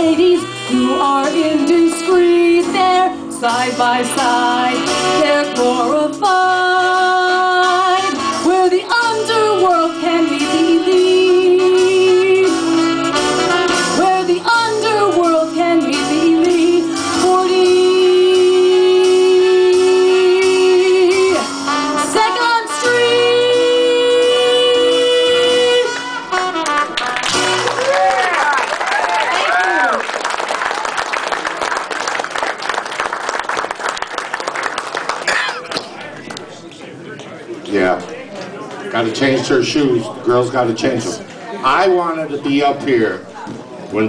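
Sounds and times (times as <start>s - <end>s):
woman singing through a microphone: 0.0s - 26.3s
instrumental accompaniment: 0.0s - 28.1s.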